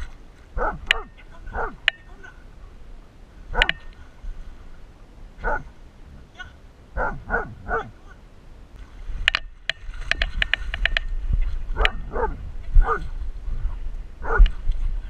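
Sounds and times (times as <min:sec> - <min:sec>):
water splashing: 0:08.8 - 0:15.0.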